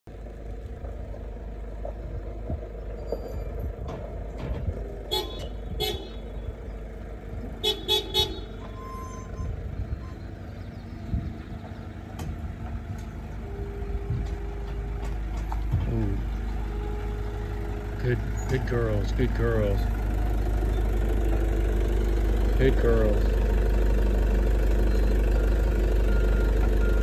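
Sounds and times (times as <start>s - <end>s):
truck engine rumble: 0.1s - 27.0s
truck horn tooting: 5.0s - 6.6s, 7.6s - 10.2s.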